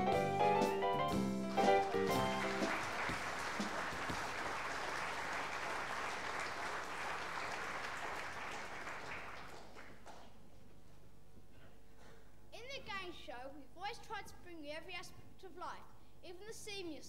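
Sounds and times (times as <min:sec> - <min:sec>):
audience applauding: 0:01.4 - 0:10.4.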